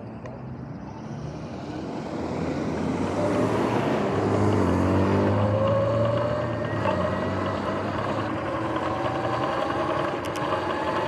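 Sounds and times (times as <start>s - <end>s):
road traffic passing: 0.0s - 11.0s
electric motor whine: 4.1s - 11.0s.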